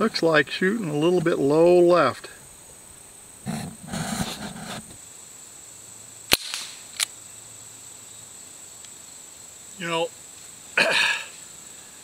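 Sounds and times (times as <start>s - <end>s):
rustling: 3.4s - 5.0s.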